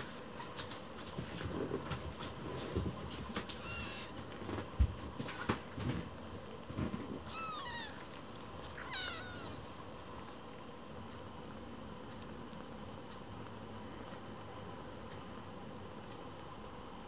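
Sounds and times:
kittens mewing: 3.5 - 4.2, 7.2 - 8.2, 8.8 - 9.7.

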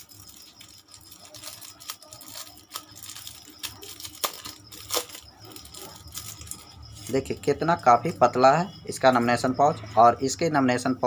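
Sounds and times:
plastic crinkling and rustling: 0.0 - 7.5.

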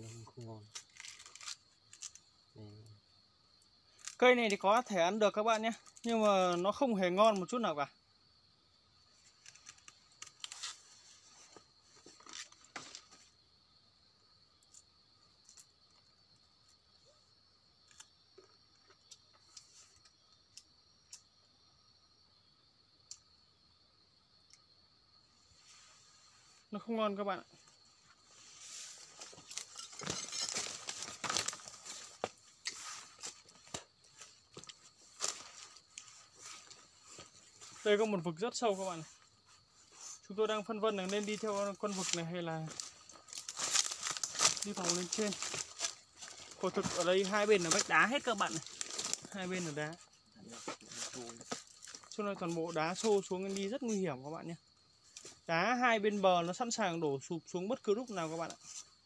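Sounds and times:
vegetation rustling and crackling: 0.6 - 2.3, 9.2 - 13.2, 27.6 - 54.0
dry leaves rustling and crunching: 28.9 - 33.6, 41.2 - 49.8.

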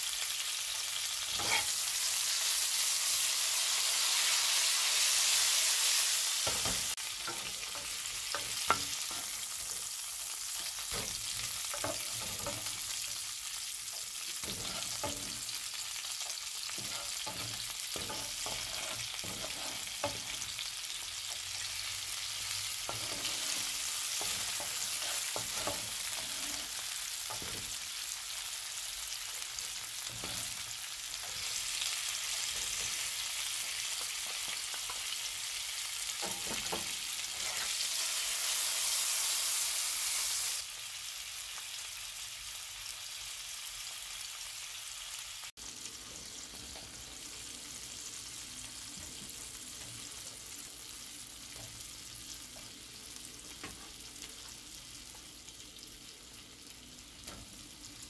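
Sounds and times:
vegetables sizzling in frying pan: 0.0 - 58.0
wooden spatula scraping pan: 1.4 - 1.8, 14.4 - 15.6, 16.7 - 20.5, 22.8 - 27.8.

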